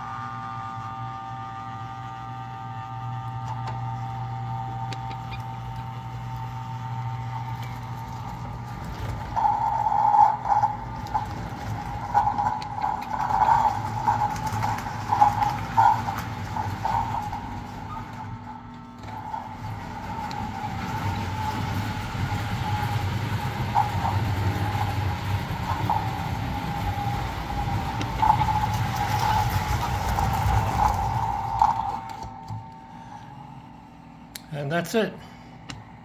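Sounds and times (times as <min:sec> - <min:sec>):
model train motor hum: 0:00.0 - 0:32.6
wavering high tone: 0:07.3 - 0:33.8.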